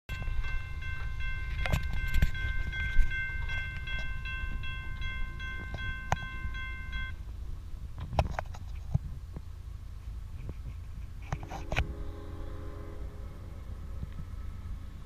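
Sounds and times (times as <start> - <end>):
railroad crossing bell ringing: 0.1 - 7.3, 11.4 - 15.0
low steady rumble: 0.1 - 15.0.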